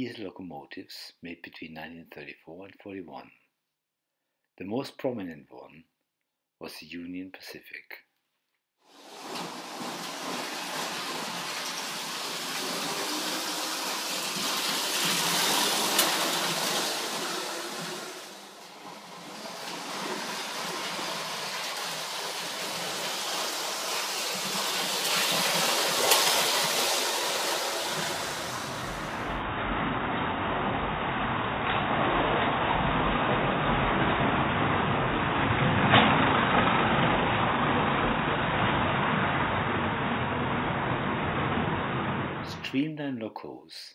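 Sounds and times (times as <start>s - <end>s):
toy train rattling rumble: 9.0s - 29.4s.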